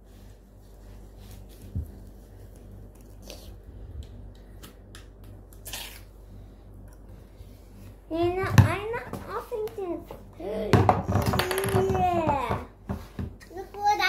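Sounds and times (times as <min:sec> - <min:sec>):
squishy slime rustle: 0:00.0 - 0:03.7.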